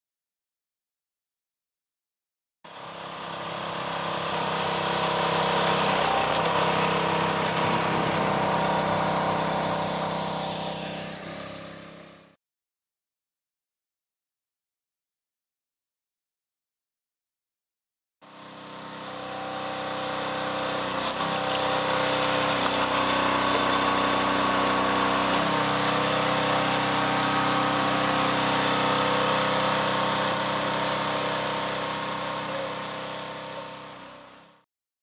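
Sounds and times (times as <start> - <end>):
small gas engine running: 2.7 - 12.4, 18.2 - 34.7.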